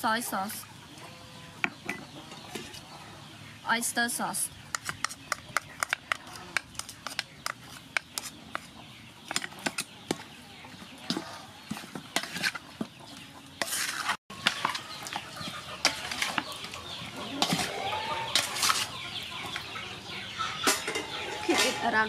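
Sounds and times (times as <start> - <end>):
hens clucking: 5.0 - 22.0
spoon scraping metal bowl: 11.1 - 12.6, 13.6 - 15.2, 17.4 - 18.9.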